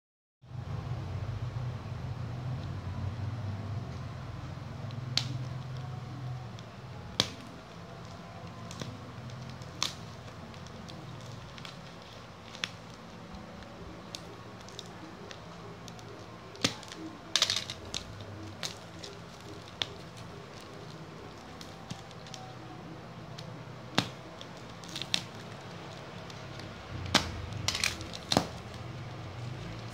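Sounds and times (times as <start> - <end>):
sharp snaps and clicks: 4.8 - 22.6
plastic crinkling: 4.8 - 29.9.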